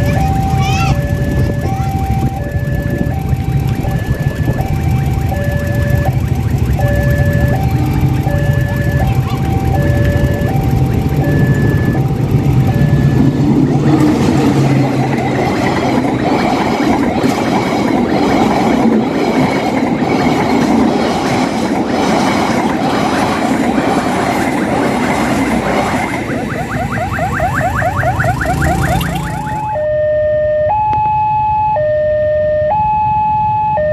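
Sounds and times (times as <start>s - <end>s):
passing train rumble: 0.0s - 30.4s
level-crossing two-tone alarm: 0.0s - 33.9s
low hum: 1.0s - 19.2s.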